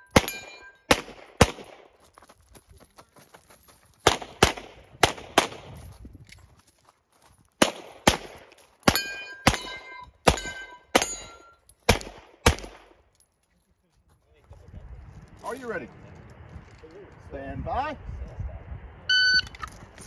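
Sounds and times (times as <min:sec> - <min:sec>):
steel targets ringing: 0:00.0 - 0:00.9, 0:08.9 - 0:11.7
pistol shots: 0:00.1 - 0:01.9, 0:04.0 - 0:05.7, 0:07.6 - 0:13.0.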